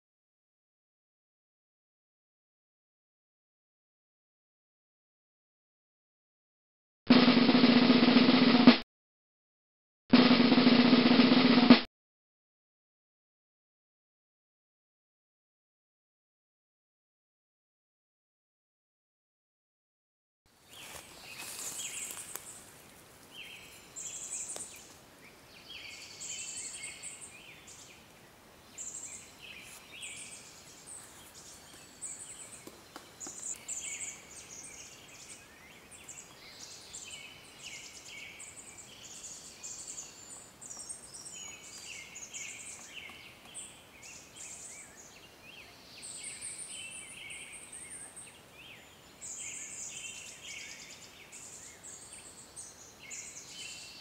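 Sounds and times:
birds chirping: 0:20.6 - 0:54.0.

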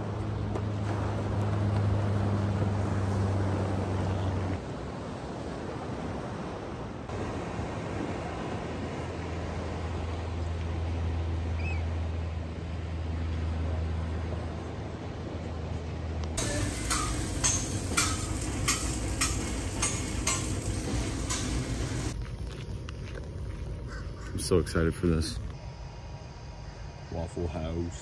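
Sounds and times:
surf rumble: 0:00.0 - 0:22.2.

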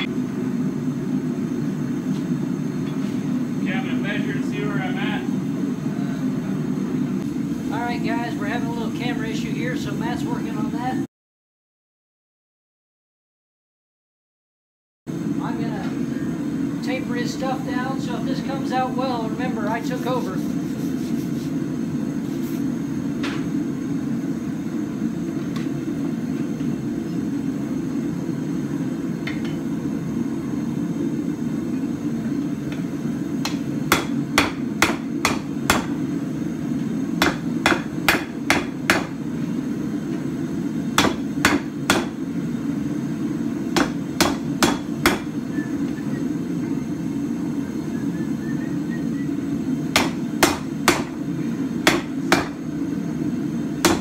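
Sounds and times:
hammer striking steel on anvil: 0:33.4 - 0:36.0, 0:37.2 - 0:39.2, 0:41.0 - 0:42.2, 0:43.8 - 0:45.3, 0:49.9 - 0:51.2, 0:51.8 - 0:52.6.

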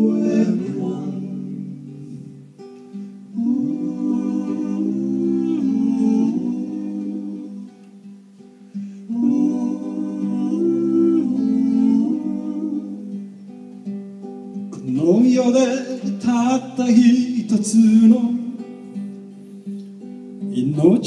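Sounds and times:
men singing in harmony: 0:00.0 - 0:02.4, 0:03.3 - 0:07.8, 0:09.1 - 0:13.3, 0:14.8 - 0:18.6
acoustic guitar: 0:00.0 - 0:21.0.

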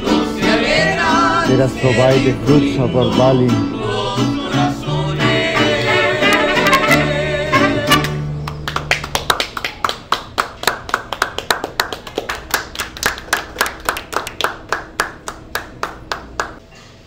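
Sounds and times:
mariachi band with trumpets: 0:00.0 - 0:08.6
people clapping: 0:07.9 - 0:16.6.

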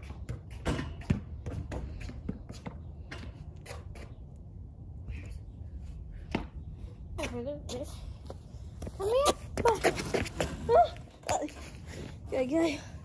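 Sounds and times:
knocks and scuffs on concrete: 0:07.2 - 0:11.6.

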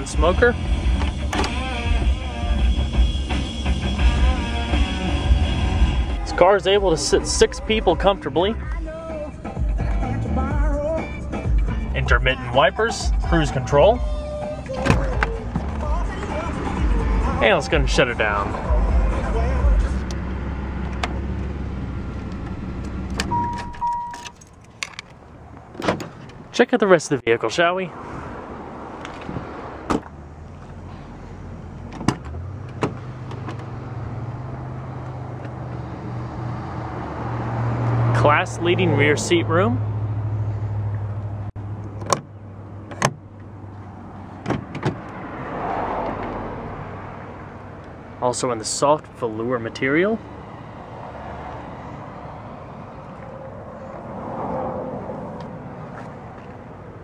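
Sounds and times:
traffic noise: 0:00.0 - 0:57.0
vehicle engine hum: 0:00.0 - 0:57.0
car door latch clicks: 0:01.0 - 0:01.6, 0:14.7 - 0:15.8, 0:22.4 - 0:26.4, 0:29.9 - 0:30.2, 0:31.9 - 0:33.7, 0:41.8 - 0:42.3, 0:42.9 - 0:43.2, 0:44.4 - 0:45.2.

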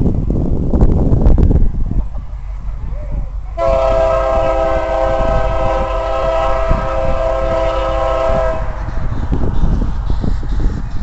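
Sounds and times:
locomotive air horn blast: 0:03.6 - 0:08.9.

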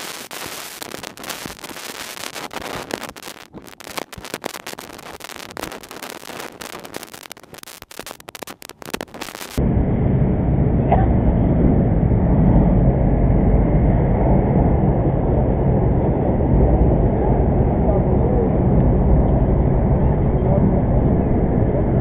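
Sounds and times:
underwater clicking and crackling: 0:00.0 - 0:09.6.

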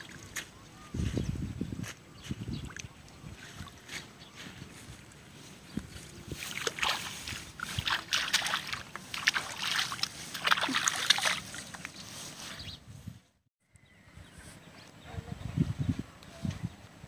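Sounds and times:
wet weeds rustling: 0:00.0 - 0:13.2
crackly brushing: 0:03.7 - 0:13.2
water splashing: 0:06.3 - 0:12.1.

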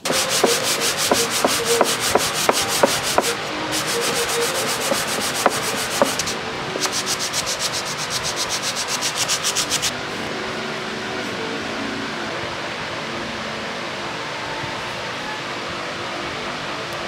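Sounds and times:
sandpaper rubbing on wood: 0:00.0 - 0:09.9.

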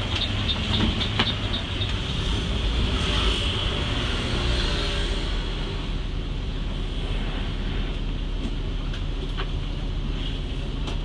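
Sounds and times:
bus engine and road rumble: 0:00.0 - 0:11.0.

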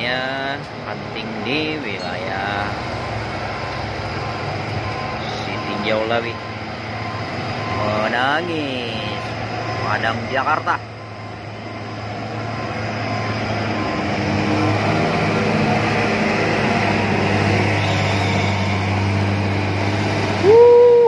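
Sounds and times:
diesel bus engine labouring: 0:00.0 - 0:21.0
bus horn blast: 0:17.5 - 0:19.4.

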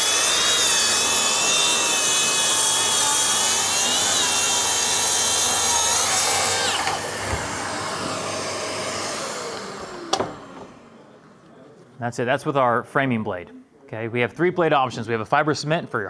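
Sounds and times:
saw cutting wood whining: 0:00.0 - 0:11.5.

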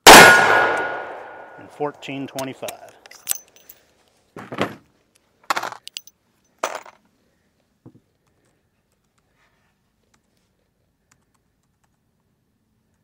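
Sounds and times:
revolver and brass cases clinking: 0:02.2 - 0:03.8, 0:05.5 - 0:07.0.

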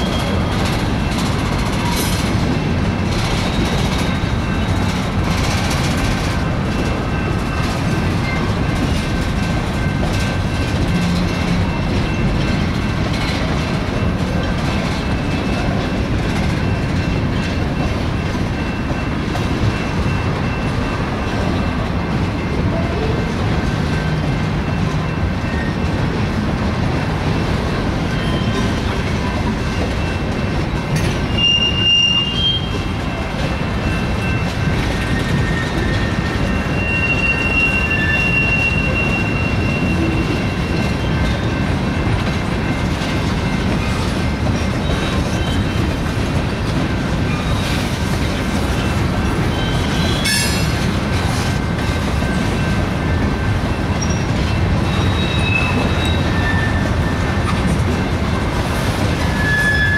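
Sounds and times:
steel wheels rumbling on rails: 0:00.0 - 0:59.9
high wheel squeals: 0:28.1 - 0:29.4, 0:31.2 - 0:33.2, 0:33.8 - 0:42.0, 0:44.6 - 0:45.9, 0:48.8 - 0:50.8, 0:53.9 - 0:57.6, 0:59.2 - 0:59.9.

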